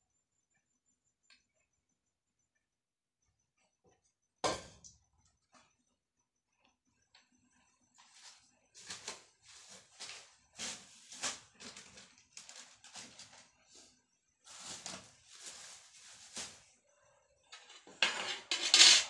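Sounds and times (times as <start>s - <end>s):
kitchen things rustling and scraping: 8.0s - 16.8s, 17.4s - 19.0s.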